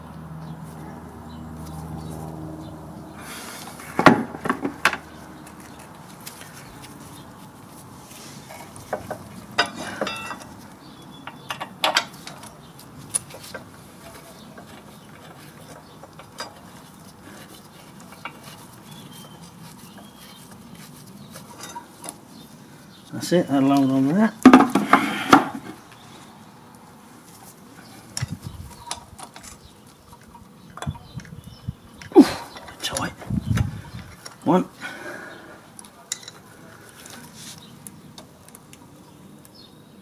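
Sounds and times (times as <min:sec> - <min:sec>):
metal clinks and knocks: 0:08.5 - 0:10.6.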